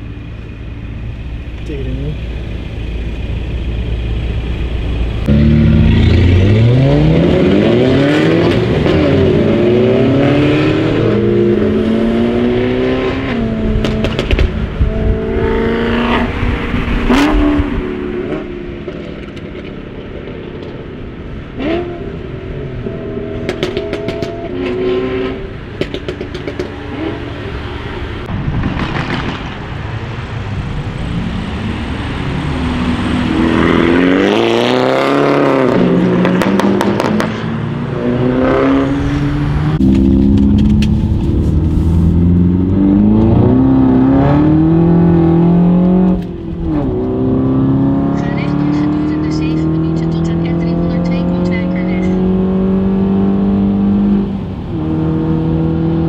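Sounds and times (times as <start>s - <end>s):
car engine accelerating hard: 1.5s - 19.4s, 30.7s - 56.0s
exhaust pops and bangs: 13.8s - 14.6s, 28.3s - 29.6s.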